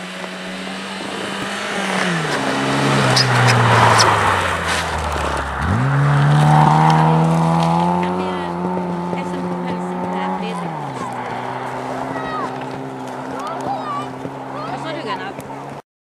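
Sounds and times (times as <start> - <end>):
rally car engine passing: 0.0 - 15.8.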